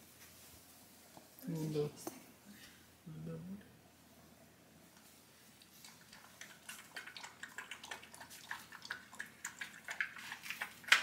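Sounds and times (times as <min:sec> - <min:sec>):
puppy lapping water: 0:05.6 - 0:11.0.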